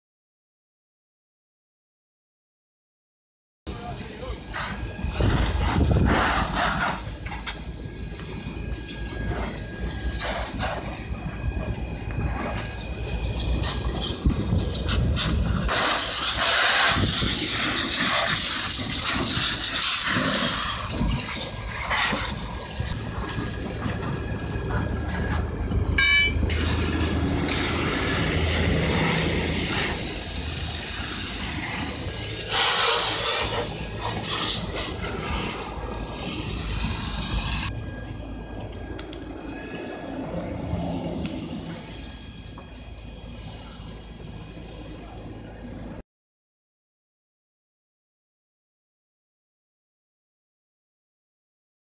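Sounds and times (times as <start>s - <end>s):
hose nozzle spraying water: 14.7s - 23.0s, 26.5s - 37.7s.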